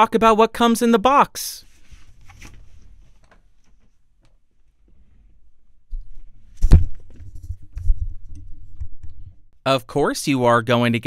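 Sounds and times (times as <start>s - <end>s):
sharp thud: 6.6s - 7.2s.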